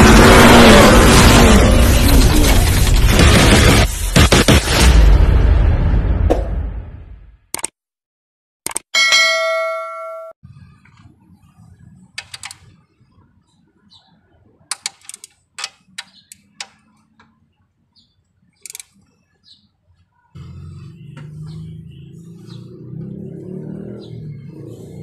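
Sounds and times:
bright bell-like ding: 0:09.0 - 0:10.4
torque wrench clicking on bolts: 0:12.2 - 0:12.6, 0:14.7 - 0:16.8, 0:18.6 - 0:19.0.

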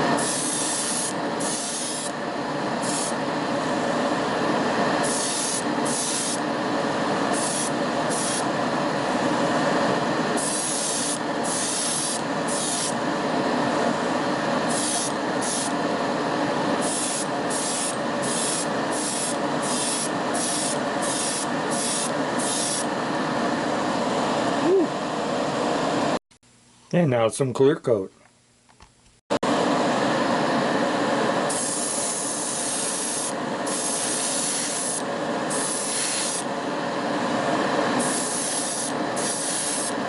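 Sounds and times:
spray paint hissing: 0:00.0 - 0:03.3, 0:05.0 - 0:06.6, 0:07.3 - 0:08.7, 0:10.3 - 0:13.0, 0:14.6 - 0:15.9, 0:16.7 - 0:23.0, 0:31.5 - 0:36.5, 0:38.0 - 0:40.0.

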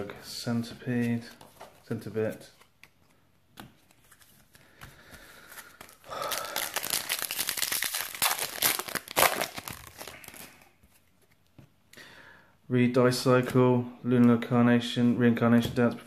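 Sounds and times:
foil wrapper tearing and crinkling: 0:06.2 - 0:10.5.

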